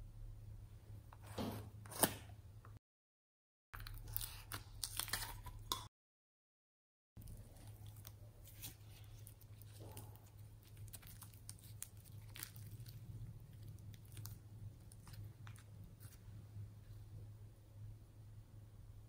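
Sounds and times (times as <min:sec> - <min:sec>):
steady low hum: 0:07.2 - 0:19.0.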